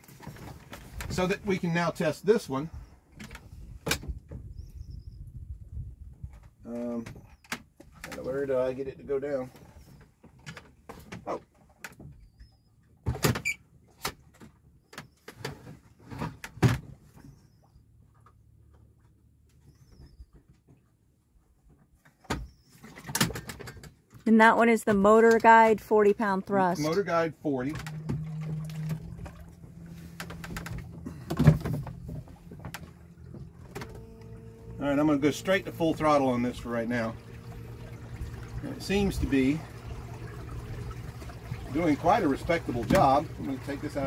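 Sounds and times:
electric motor humming: 0:27.7 - 0:44.0
clunks and knocks of motor bracket: 0:29.0 - 0:34.7.

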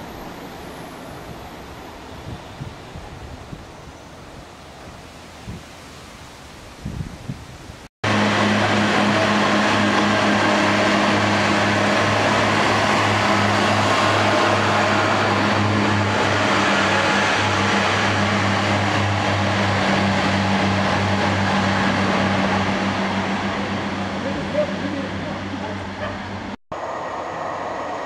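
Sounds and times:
diesel train engines droning: 0:08.0 - 0:28.0.

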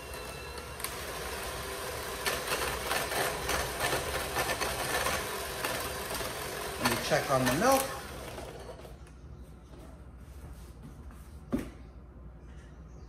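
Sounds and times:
electric mixer running: 0:00.0 - 0:09.0
mixer beaters clattering: 0:00.0 - 0:09.1.

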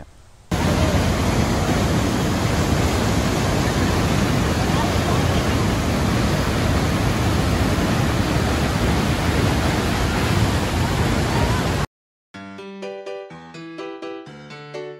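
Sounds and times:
waterfall rushing: 0:00.5 - 0:11.9.

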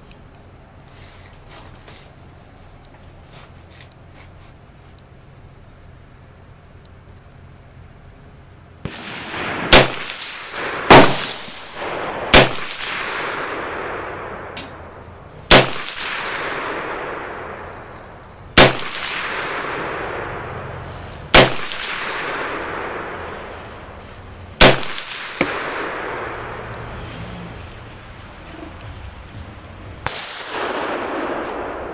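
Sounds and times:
rifle shots echoing: 0:08.8 - 0:27.1, 0:30.0 - 0:31.9.

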